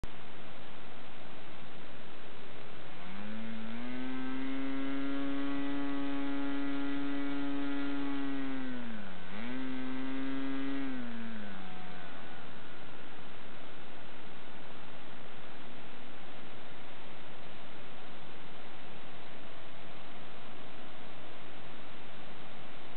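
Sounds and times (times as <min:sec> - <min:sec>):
model airplane engine running: 0:02.7 - 0:13.8.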